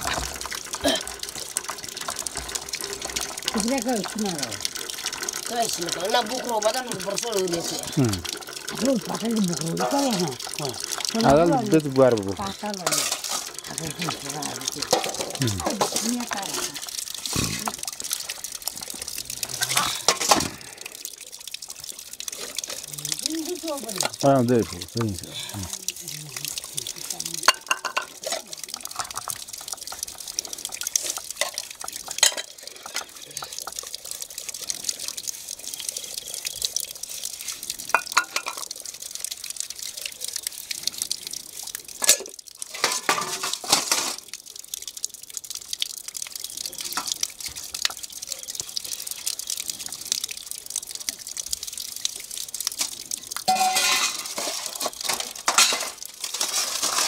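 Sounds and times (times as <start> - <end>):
water splashing and dripping: 0.0 - 57.0
metal dishes clinking and scraping: 12.5 - 14.2, 14.8 - 16.7, 27.5 - 29.2, 32.2 - 33.1, 42.0 - 44.2, 53.5 - 57.0.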